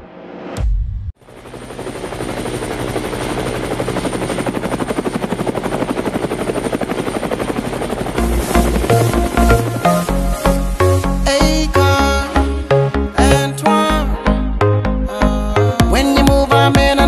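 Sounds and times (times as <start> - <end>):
helicopter rotor chopping: 1.2 - 12.4
high steady whine: 8.1 - 12.6.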